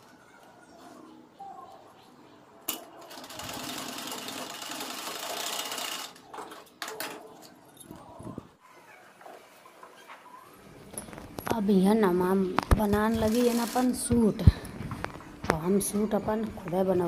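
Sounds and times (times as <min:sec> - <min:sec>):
sewing machine stitching: 0:03.0 - 0:06.3, 0:13.1 - 0:14.0.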